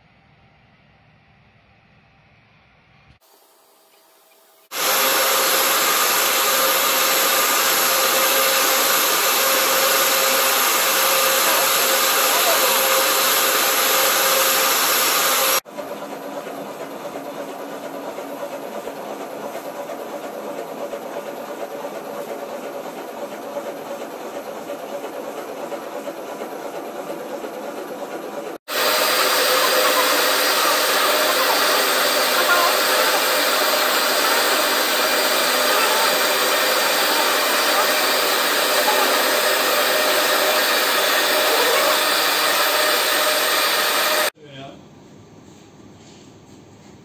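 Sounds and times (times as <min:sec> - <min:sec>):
foam cutting machine hissing: 0:03.2 - 0:15.7, 0:28.5 - 0:44.4.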